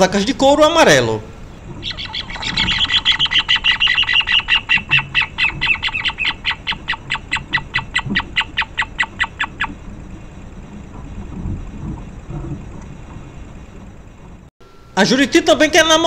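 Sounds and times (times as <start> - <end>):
birds calling rapid repeated notes: 1.4 - 10.5.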